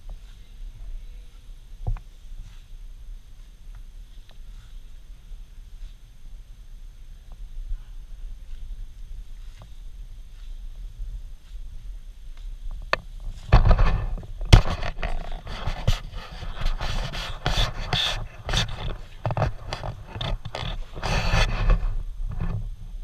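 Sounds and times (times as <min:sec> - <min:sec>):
camera handling rubbing and bumping: 0:12.9 - 0:21.8.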